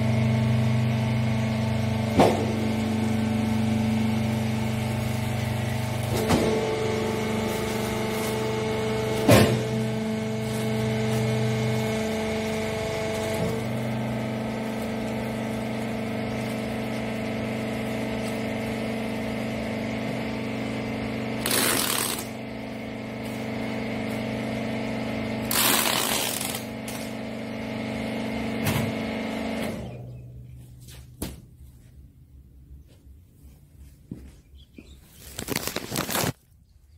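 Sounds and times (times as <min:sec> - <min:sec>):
hydraulic motor and pump humming: 0:00.0 - 0:34.9
packing tape tearing from tape gun: 0:21.4 - 0:22.4, 0:25.4 - 0:27.1, 0:35.2 - 0:36.4.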